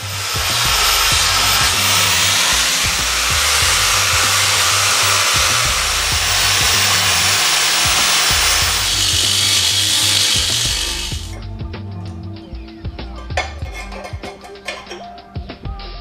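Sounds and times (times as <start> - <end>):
angle grinder grinding metal: 0.0 - 11.4
background music with beat: 0.0 - 16.0.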